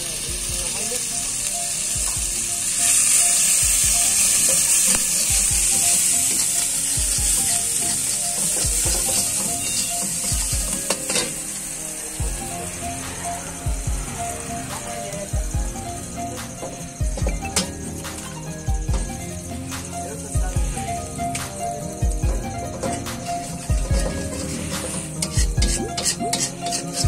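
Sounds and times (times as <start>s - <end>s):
eggs sizzling in oil: 0.0s - 27.0s
metal spatula scraping pan: 7.5s - 11.4s, 22.8s - 27.0s.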